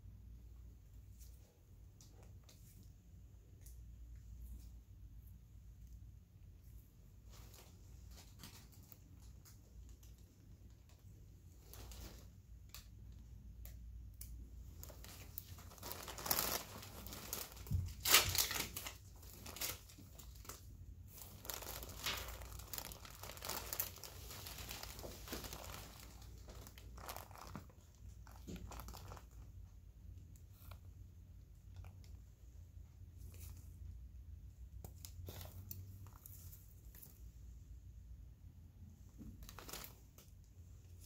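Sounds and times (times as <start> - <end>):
paper and gauze crinkling: 7.1 - 13.2, 14.6 - 37.5, 39.1 - 41.0.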